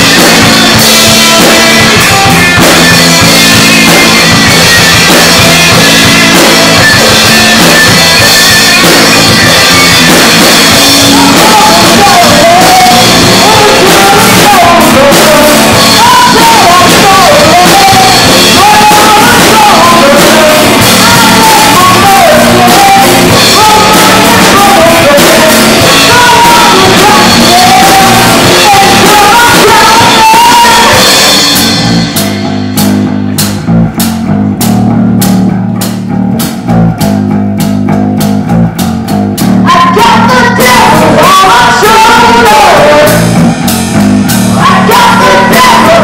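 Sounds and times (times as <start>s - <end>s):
person singing: 0.0s - 2.8s, 5.2s - 31.8s, 39.7s - 43.4s, 44.5s - 46.0s
bass guitar: 0.0s - 46.0s
drum kit: 0.0s - 46.0s
electric guitar: 0.0s - 46.0s.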